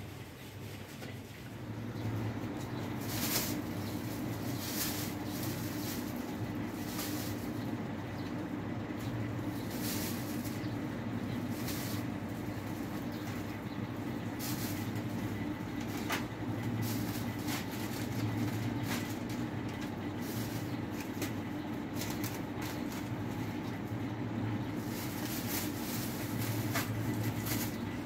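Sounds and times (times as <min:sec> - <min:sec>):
steady low hum: 0:00.0 - 0:28.0
plastic bag crinkling: 0:02.9 - 0:07.6, 0:24.7 - 0:28.0.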